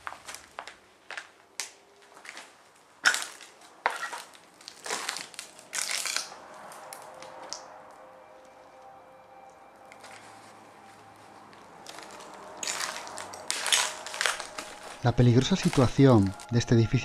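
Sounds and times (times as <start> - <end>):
footsteps crunching over rubble: 0.0 - 6.2, 11.4 - 16.9
faint steady tone: 6.3 - 17.0.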